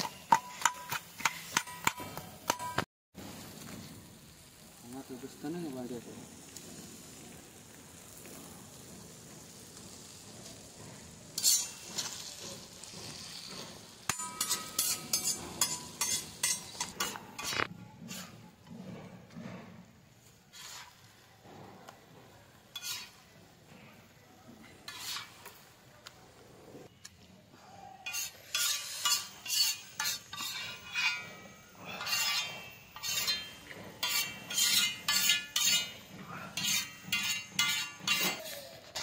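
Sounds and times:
food sizzling in a pot: 3.2 - 18.4, 20.2 - 21.4, 22.4 - 23.6, 24.7 - 26.0, 28.1 - 39.0
metal spoon scraping a pot: 11.4 - 19.9, 20.5 - 21.3, 22.7 - 23.4, 24.8 - 25.6, 28.0 - 39.0.

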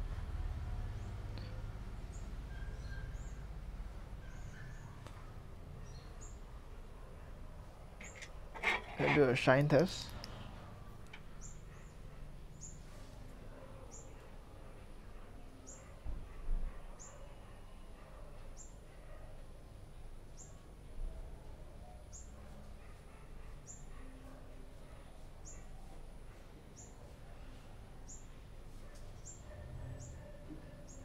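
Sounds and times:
bird chirping: 2.1 - 3.5.

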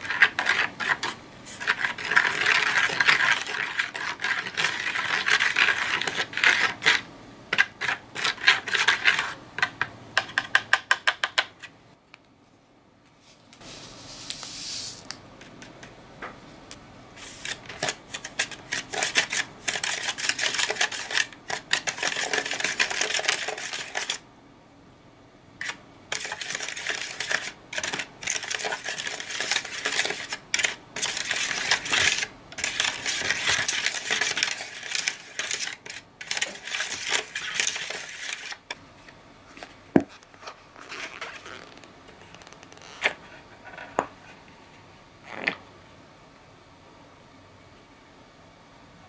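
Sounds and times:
plastic spoon stirring in cup: 0.0 - 11.6, 17.2 - 24.2, 25.6 - 38.8.

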